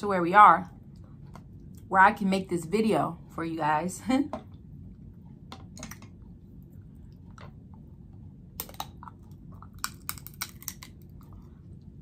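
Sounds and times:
low steady hum: 0:00.0 - 0:12.0
crab shell cracking: 0:08.6 - 0:11.3.

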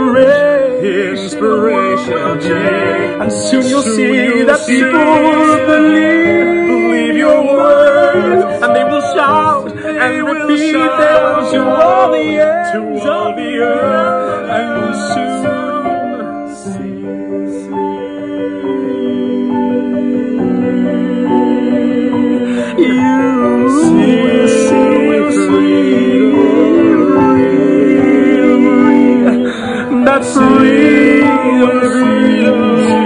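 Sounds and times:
men singing in harmony: 0:00.0 - 0:33.0.

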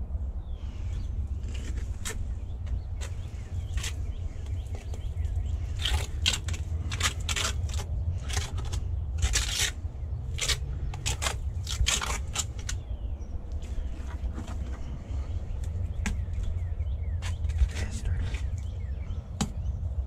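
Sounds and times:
trowel scraping wet mortar: 0:05.7 - 0:12.8.

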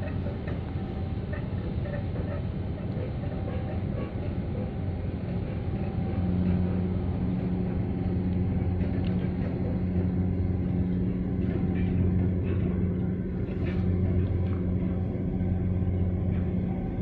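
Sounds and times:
ship engines droning: 0:00.0 - 0:17.0.

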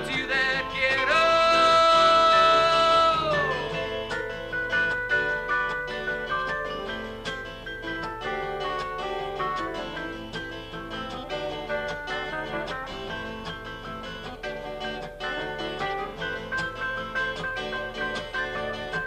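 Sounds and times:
keyboard playing runs: 0:00.0 - 0:19.0
strummed acoustic guitar: 0:00.0 - 0:19.0.

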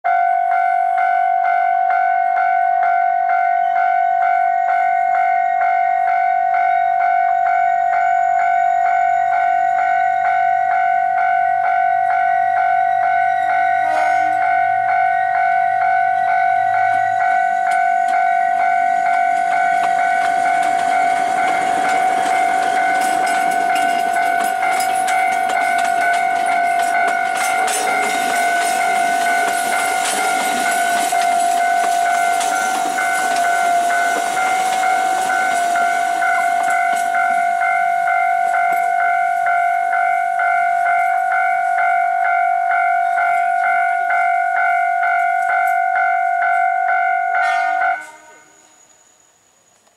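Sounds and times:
level-crossing warning bell: 0:00.0 - 0:49.9
train wheels clicking over rail joints: 0:16.2 - 0:46.6.

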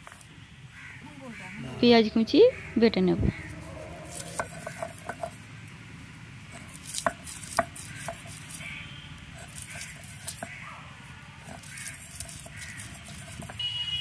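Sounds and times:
stone roller scraping: 0:03.4 - 0:05.5, 0:06.5 - 0:08.8, 0:09.4 - 0:10.6, 0:11.4 - 0:13.7
stone knocking on stone: 0:04.1 - 0:05.4.

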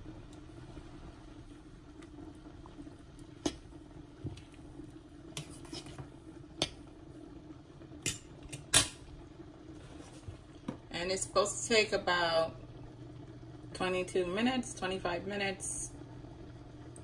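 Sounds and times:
faint steady hum: 0:00.0 - 0:17.0
spoon stirring in saucepan: 0:00.3 - 0:07.0.

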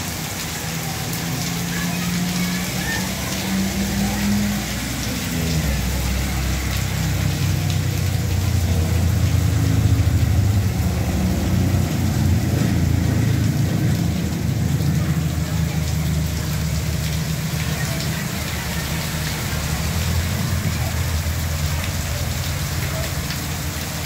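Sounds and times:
heavy rain hissing: 0:00.0 - 0:24.0.

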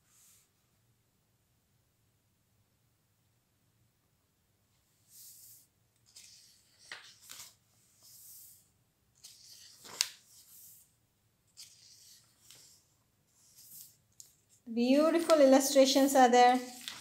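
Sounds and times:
pages turning with paper rustles: 0:05.0 - 0:17.0
crisp page flick: 0:06.1 - 0:07.6, 0:09.2 - 0:10.6, 0:16.5 - 0:17.0.

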